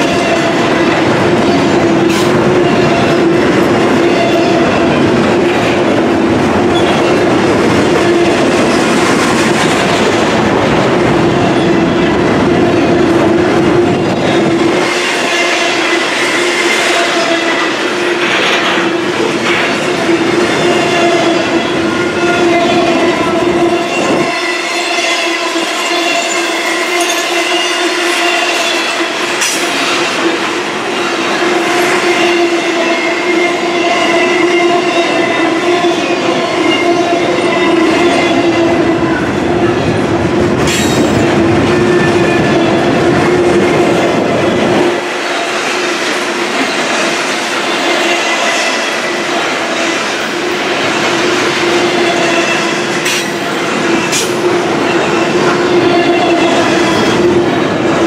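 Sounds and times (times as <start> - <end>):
clacks from rails: 0.0 - 10.9, 12.3 - 22.0, 25.6 - 33.0, 44.8 - 57.4
train rumble: 0.0 - 58.0
train wheels squealing: 6.7 - 9.0, 14.1 - 30.4, 46.6 - 57.8.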